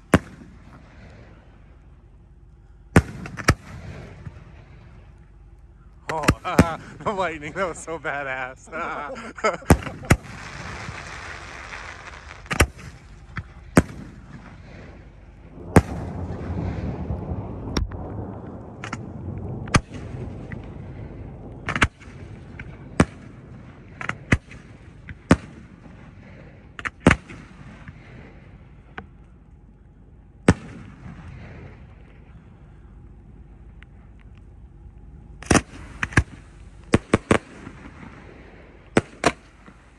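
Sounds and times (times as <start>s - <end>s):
low rumble: 0.0s - 39.9s
fireworks bangs: 3.0s - 5.1s, 6.1s - 8.4s, 9.4s - 28.5s, 35.4s - 39.9s.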